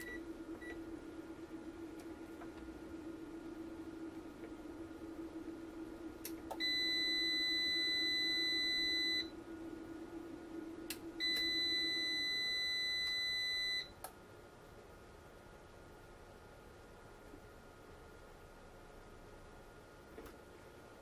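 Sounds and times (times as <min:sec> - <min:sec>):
low steady hum: 0:00.0 - 0:21.0
high-pitched electronic beeps: 0:06.6 - 0:09.4, 0:11.2 - 0:13.9.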